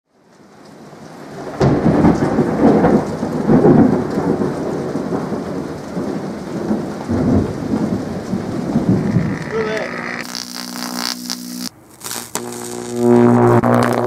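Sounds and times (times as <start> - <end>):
steady rain: 0.1 - 14.0
rolling thunder: 1.4 - 9.4.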